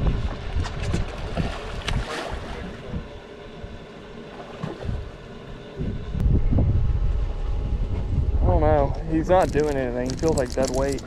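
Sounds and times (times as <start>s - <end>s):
wind buffeting microphone: 0.0s - 3.2s, 5.8s - 11.0s.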